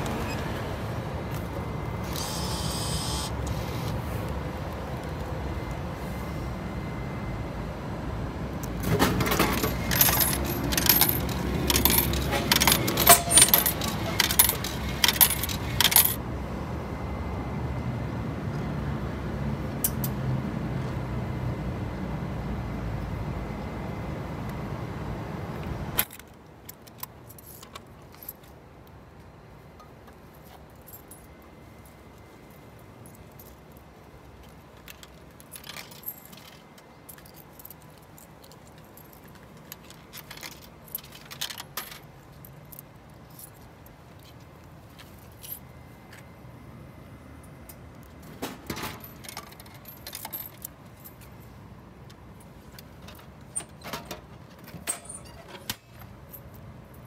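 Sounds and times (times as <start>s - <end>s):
low background hum: 0.0s - 57.0s
coins jingling and clinking: 9.2s - 16.2s, 34.8s - 44.4s, 48.7s - 51.5s.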